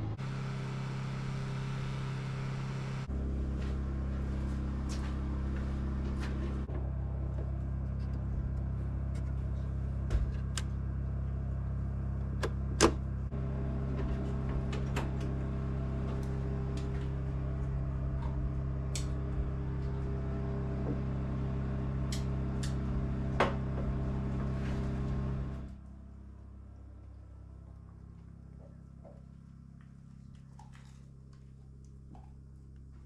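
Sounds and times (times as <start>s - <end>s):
generator running: 0.0s - 33.0s
circuit breakers clicking: 18.4s - 19.4s, 22.0s - 23.0s.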